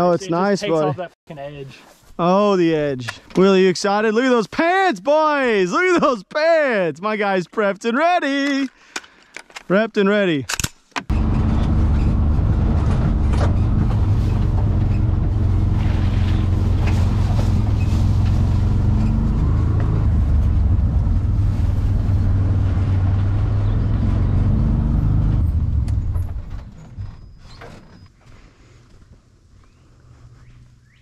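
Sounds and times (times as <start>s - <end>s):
vehicle engine droning: 11.1s - 27.3s.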